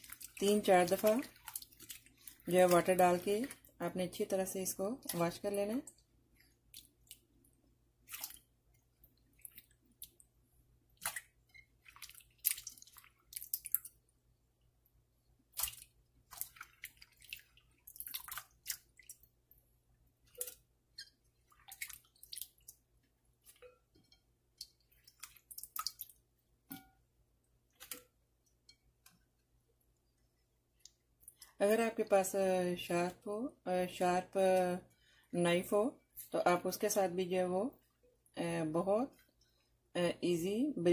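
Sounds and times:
hand splashing potato slices in water: 0.0 - 14.1, 15.4 - 29.4.

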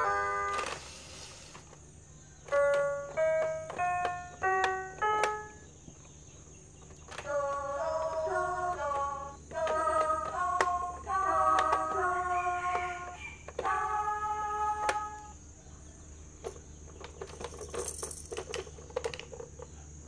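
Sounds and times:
electronic toy piano notes: 0.0 - 1.2, 2.3 - 15.4.

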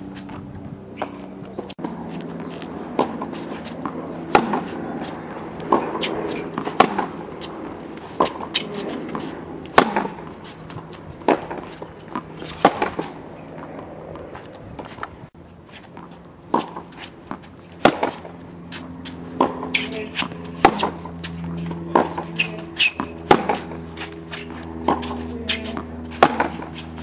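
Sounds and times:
tennis ball bouncing: 1.0 - 15.1, 15.8 - 27.0
tennis racket hitting ball: 2.9 - 13.0, 16.5 - 27.0.

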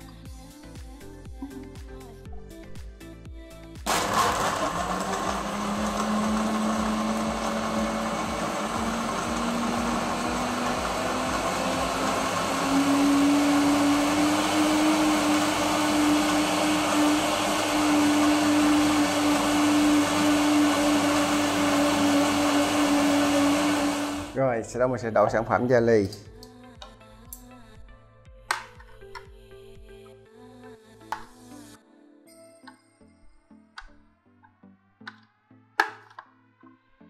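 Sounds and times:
blender motor running: 3.9 - 24.4.

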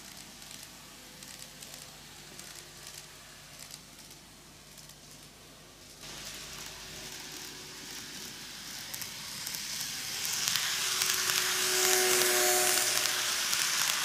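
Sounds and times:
model train wheels rattling: 0.0 - 14.0
model train whine: 6.0 - 14.0.

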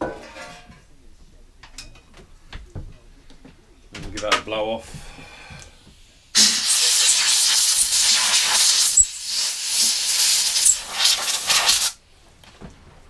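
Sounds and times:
compressed air blow gun hissing: 6.4 - 12.0.

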